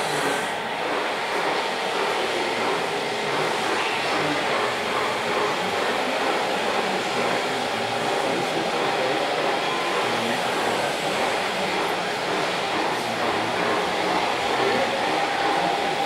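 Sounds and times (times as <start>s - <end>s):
model excavator hydraulics: 0.0s - 1.4s.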